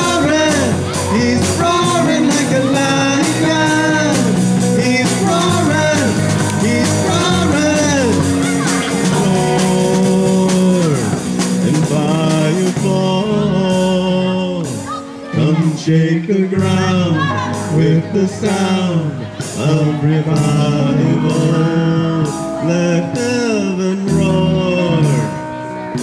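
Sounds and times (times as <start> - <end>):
drum kit: 0.0 - 16.0, 16.6 - 26.0
electric bass: 0.0 - 26.0
electric guitar: 0.0 - 26.0
keyboard: 0.0 - 26.0
person singing: 0.0 - 26.0.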